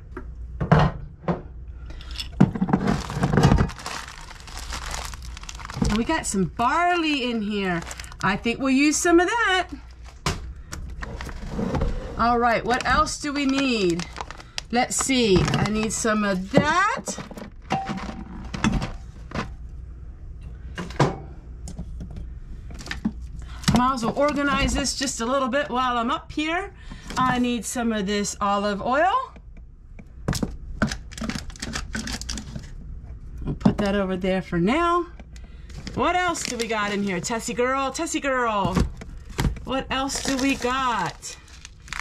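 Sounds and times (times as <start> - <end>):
items scraping on a shelf: 2.0 - 6.2, 11.0 - 13.1.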